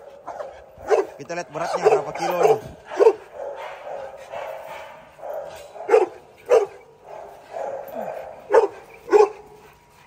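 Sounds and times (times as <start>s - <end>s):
dog barking: 0.0s - 9.6s.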